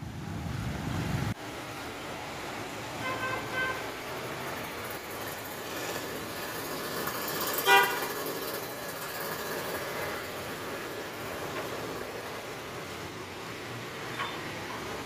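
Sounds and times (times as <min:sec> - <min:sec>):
street traffic hum: 0:00.0 - 0:15.0
vehicle horn toot: 0:03.0 - 0:03.9, 0:07.6 - 0:08.1, 0:14.1 - 0:14.5.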